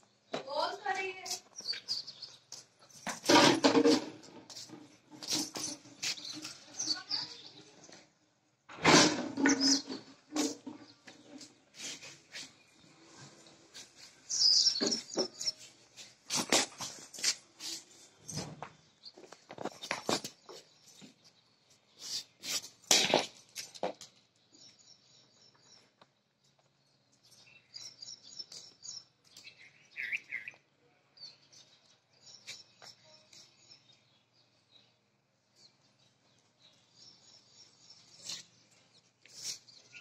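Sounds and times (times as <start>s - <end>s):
dog scuffling on concrete: 0.4s - 7.6s, 9.4s - 24.8s, 36.6s - 40.0s.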